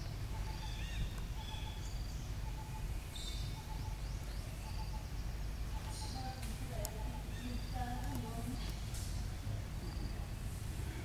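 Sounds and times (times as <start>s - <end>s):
bird chirps and calls: 0.0s - 8.7s.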